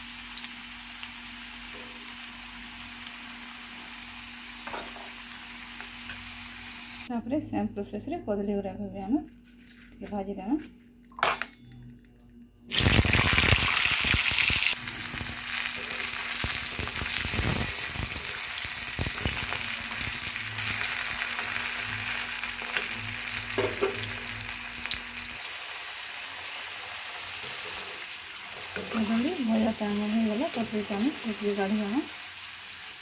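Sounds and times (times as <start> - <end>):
slices sizzling in hot oil: 0.0 - 7.1, 12.7 - 33.0
metal spatula scraping: 27.3 - 29.8.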